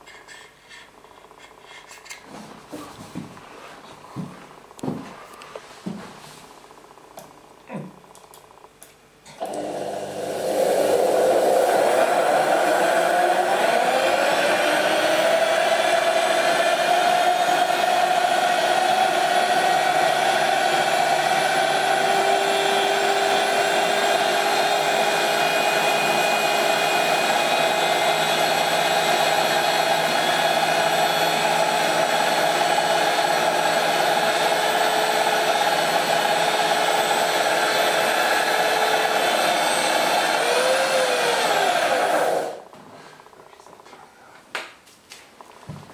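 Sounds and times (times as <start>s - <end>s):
electric drill running: 9.4s - 42.6s.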